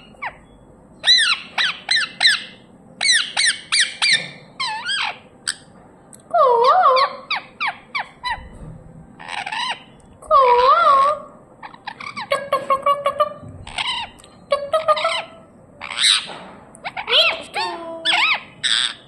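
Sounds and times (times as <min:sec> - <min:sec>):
parakeet wavering call: 0:00.0 - 0:05.6, 0:09.2 - 0:12.6, 0:13.6 - 0:19.0
parakeet squawking: 0:00.0 - 0:05.7, 0:06.4 - 0:08.5, 0:09.2 - 0:19.0.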